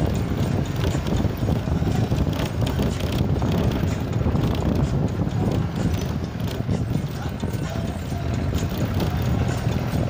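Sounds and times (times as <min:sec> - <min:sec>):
vehicle rumbling on road: 0:00.0 - 0:10.0
wind buffeting microphone: 0:00.0 - 0:10.0.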